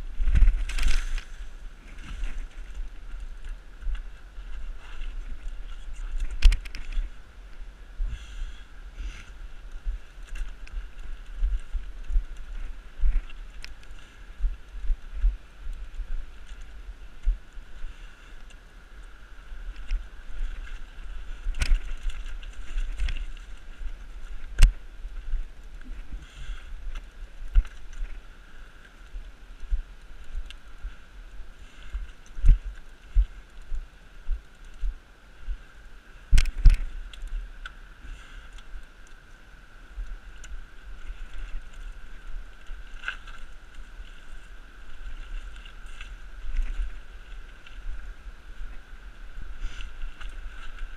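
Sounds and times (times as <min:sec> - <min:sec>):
bicycle bumps and rattles: 0:00.0 - 0:07.2, 0:19.7 - 0:28.2.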